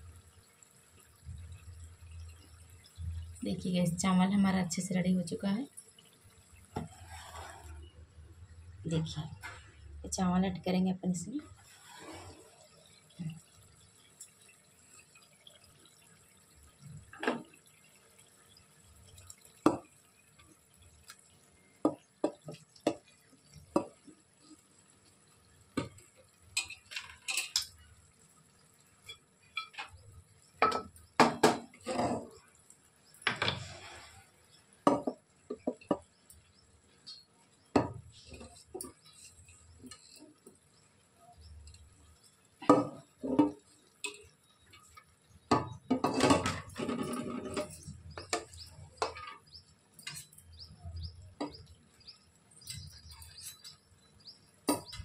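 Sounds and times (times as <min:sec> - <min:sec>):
utensil clinking on metal pots: 0:25.8 - 0:27.9, 0:29.0 - 0:30.0, 0:30.6 - 0:32.4, 0:42.6 - 0:50.6, 0:54.6 - 0:55.0.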